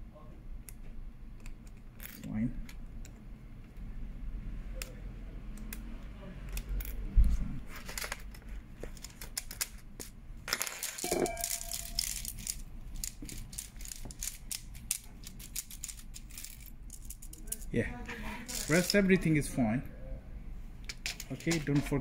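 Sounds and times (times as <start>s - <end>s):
plastic keyboard clicking and rattling: 11.7s - 17.6s.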